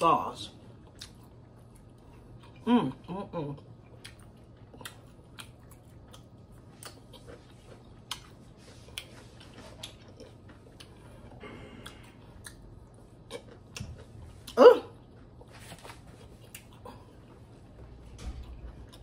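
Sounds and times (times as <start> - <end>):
person chewing: 0.7 - 19.0.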